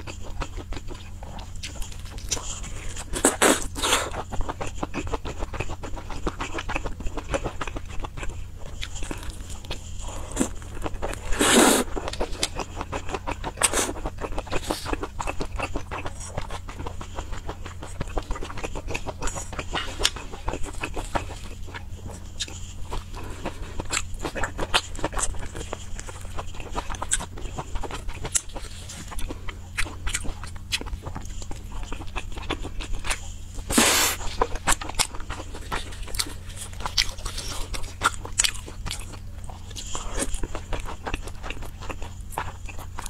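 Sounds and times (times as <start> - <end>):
steady low hum: 0.0 - 43.0
wet chewing: 0.0 - 43.0
sucking noise: 33.7 - 34.3.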